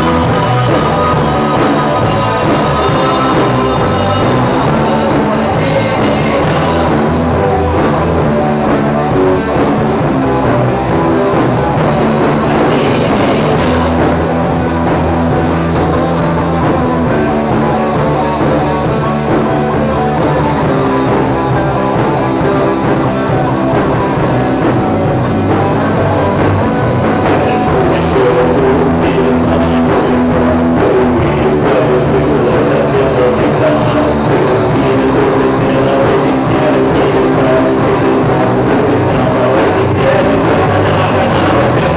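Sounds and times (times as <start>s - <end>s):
drum kit: 0.0s - 41.9s
electric guitar chords: 0.0s - 41.9s.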